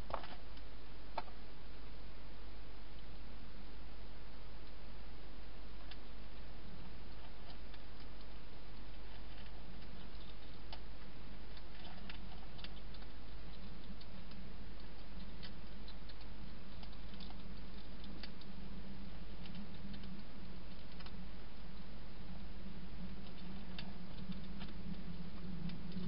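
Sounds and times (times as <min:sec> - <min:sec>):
steady hiss and low hum: 0:00.0 - 0:26.0
hedgehog chewing crunches: 0:05.8 - 0:21.3.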